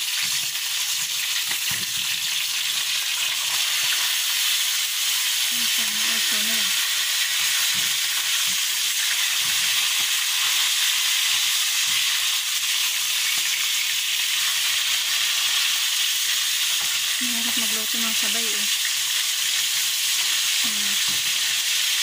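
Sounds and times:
fish sizzling in hot oil: 0.0 - 22.0.

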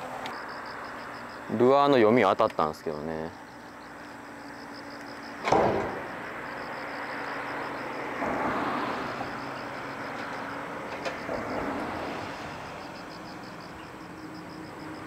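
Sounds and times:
sharp knock: 5.4 - 6.1.

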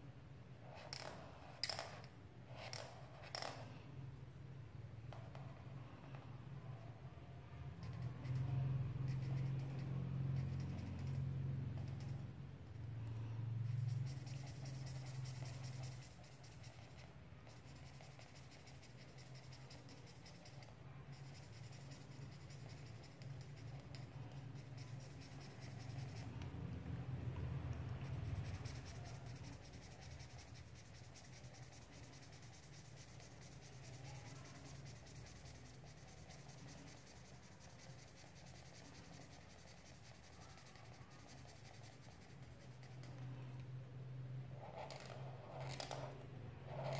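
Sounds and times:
steady low hum: 0.0 - 46.9
marker pen scratching on paper: 7.7 - 12.3, 13.6 - 43.3, 44.5 - 46.9.

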